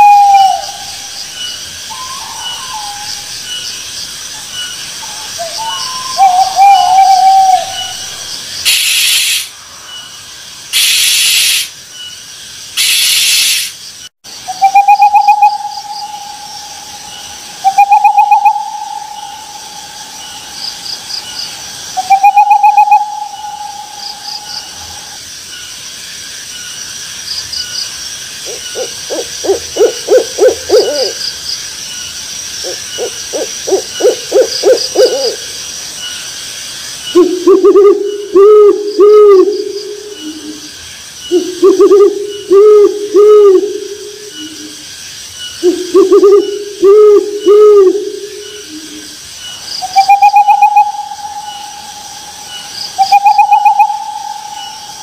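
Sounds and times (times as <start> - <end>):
owl hooting: 0.0 - 1.2, 1.9 - 3.3, 5.0 - 9.5, 10.7 - 11.7, 12.8 - 13.8, 14.5 - 20.6, 22.0 - 25.2, 28.4 - 31.2, 32.6 - 35.5, 37.1 - 44.8, 45.6 - 49.1, 49.8 - 55.0
faint high chirps: 4.5 - 25.2
owl hissing: 8.6 - 9.6, 10.7 - 11.8, 12.8 - 13.8.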